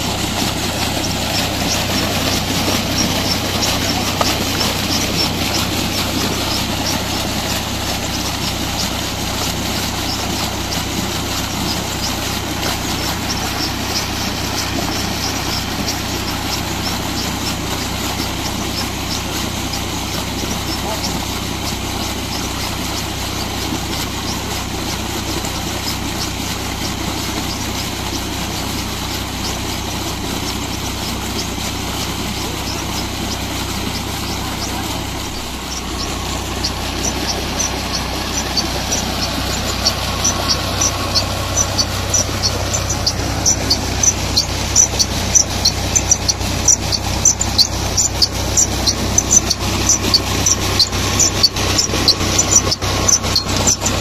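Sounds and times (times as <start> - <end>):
tractor engine running: 0.0 - 54.0
water gushing from pipe: 0.0 - 54.0
rhythmic high chirp: 32.6 - 54.0.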